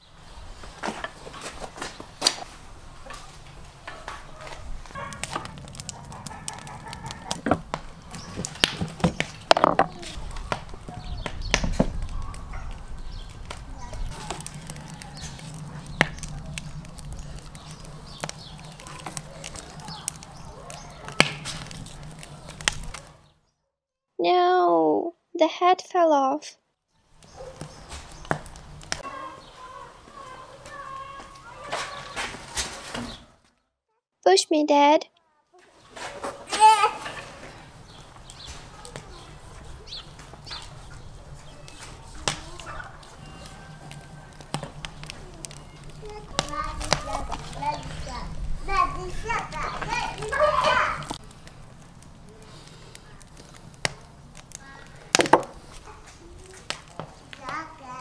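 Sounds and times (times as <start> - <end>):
bird chirps: 37.5 - 42.0.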